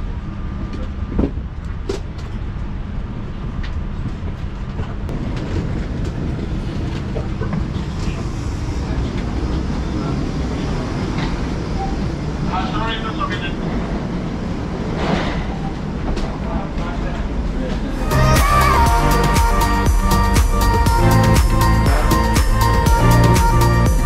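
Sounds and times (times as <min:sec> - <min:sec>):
passengers walking: 0:00.0 - 0:18.3
low rumbling cabin hum: 0:00.0 - 0:24.0.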